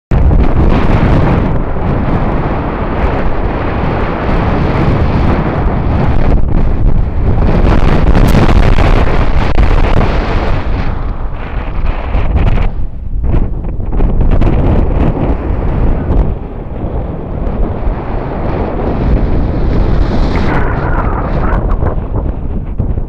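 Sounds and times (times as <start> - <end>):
wind buffeting microphone: 0.1 - 23.0.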